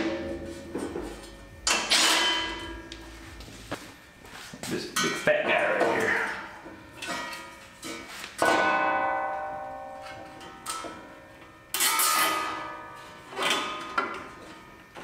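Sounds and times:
metal struck ringing: 0.0s - 3.4s, 8.4s - 13.0s.

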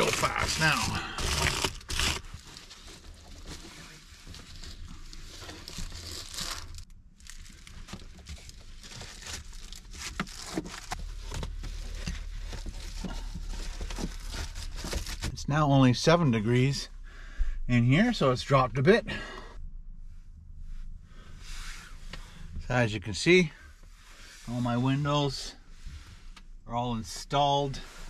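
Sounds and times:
foil crinkling and rustling: 0.0s - 15.3s.

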